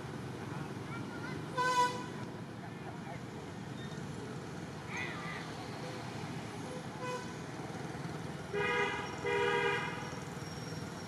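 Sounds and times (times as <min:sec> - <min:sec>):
outdoor background noise: 0:00.0 - 0:11.0
vehicle horn toots: 0:08.5 - 0:10.1.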